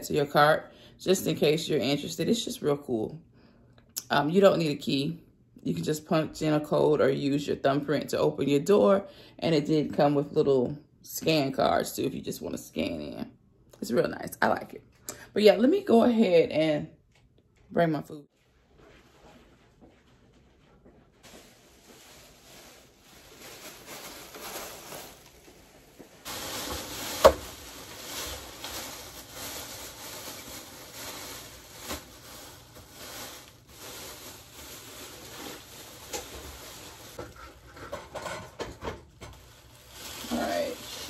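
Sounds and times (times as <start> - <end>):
plastic bags rustling: 21.0 - 37.8, 38.6 - 41.0.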